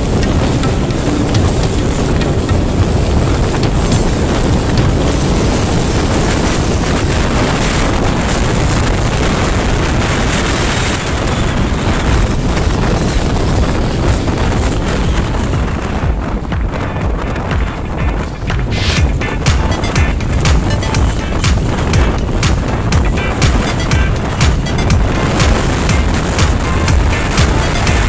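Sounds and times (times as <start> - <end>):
road noise: 0.0 - 28.0
wind buffeting microphone: 0.0 - 28.0
vehicle engine: 18.4 - 28.0.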